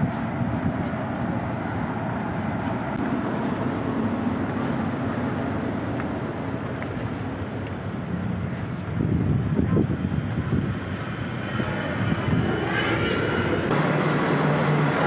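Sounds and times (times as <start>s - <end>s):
ship engines rumbling: 0.0s - 15.0s.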